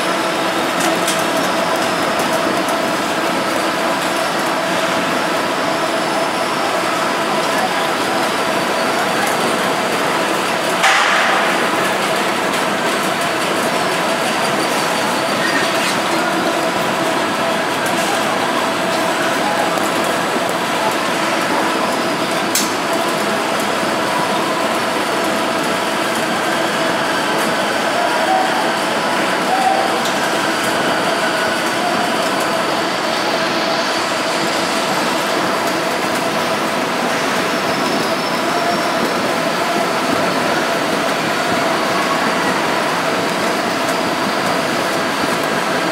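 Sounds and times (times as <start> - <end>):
conveyor knocks and clatter: 0.0 - 45.9
sizing machine running: 0.0 - 45.9.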